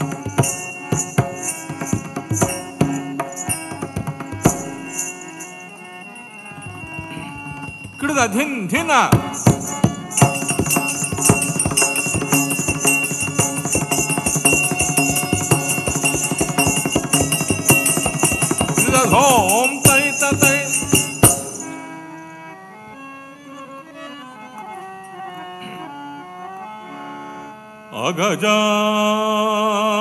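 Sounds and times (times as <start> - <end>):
percussion strikes: 0.0 - 22.0
wavering melody line: 0.0 - 22.3
jingling bells: 0.0 - 22.6.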